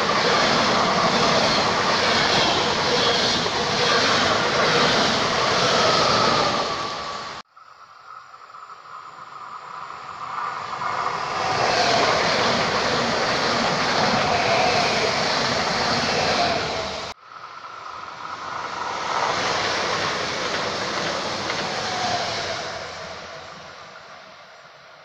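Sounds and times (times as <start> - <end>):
electric train passing: 0.0 - 25.0.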